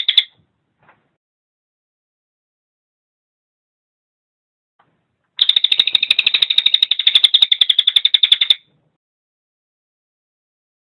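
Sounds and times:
jay rattling call: 5.4 - 8.7.

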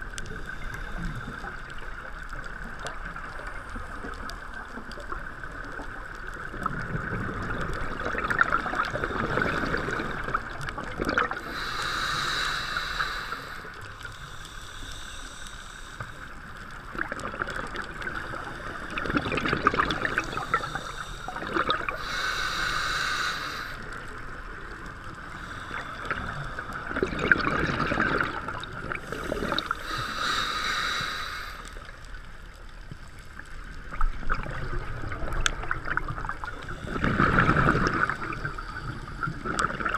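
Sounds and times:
exhaled bubbles rumbling underwater: 0.0 - 15.1, 16.1 - 39.9
regulator hissing inhale: 11.4 - 16.9, 19.9 - 27.2, 28.9 - 32.1.

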